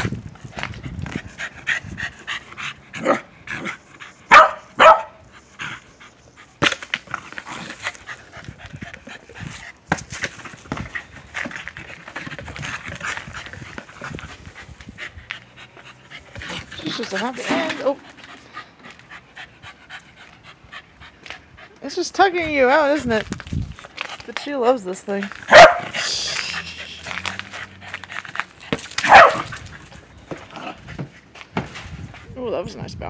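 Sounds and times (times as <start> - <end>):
dog barks: 3.0 - 3.3, 4.3 - 5.2, 25.5 - 26.0, 29.0 - 29.5
dog panting: 10.7 - 22.0.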